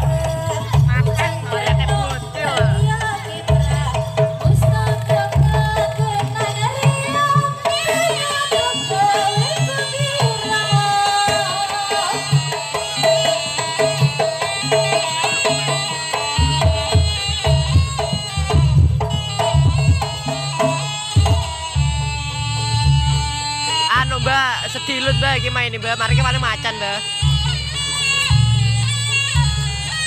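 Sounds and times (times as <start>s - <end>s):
hand drums beating: 0.0s - 30.0s
wavering melody: 7.8s - 30.0s.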